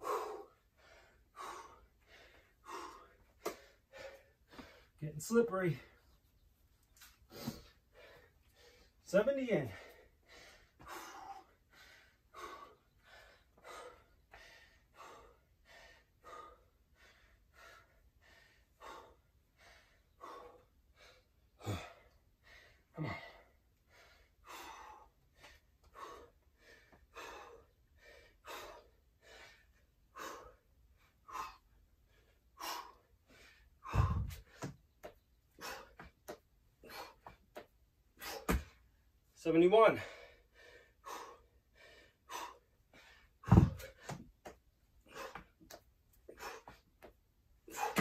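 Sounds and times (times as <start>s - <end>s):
man panting hard: 0.0s - 6.0s, 7.2s - 48.0s
dull thump on floor: 43.5s - 43.9s.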